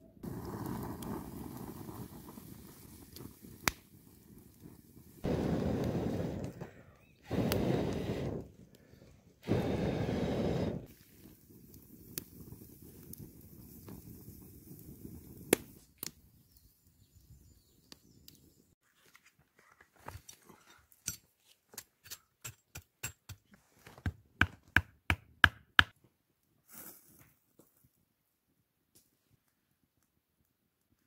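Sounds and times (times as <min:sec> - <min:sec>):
campfire crackling: 0:00.2 - 0:17.4.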